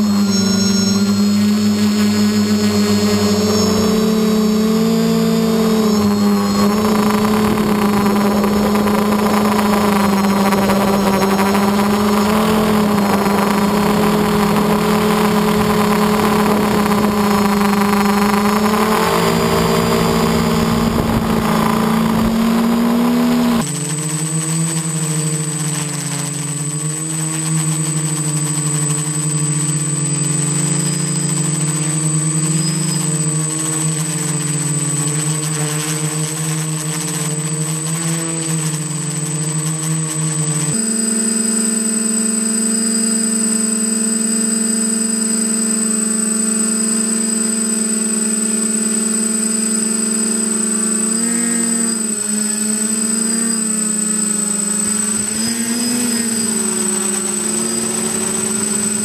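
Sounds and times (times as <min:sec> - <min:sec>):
thin high whistle: 0:00.0 - 0:23.6, 0:30.2 - 0:34.2, 0:40.7 - 0:59.0
quadcopter motors humming: 0:00.0 - 0:59.0.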